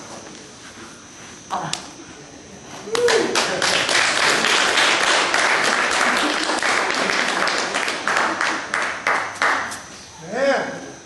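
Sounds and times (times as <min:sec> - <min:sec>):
group applause: 0:02.9 - 0:09.7.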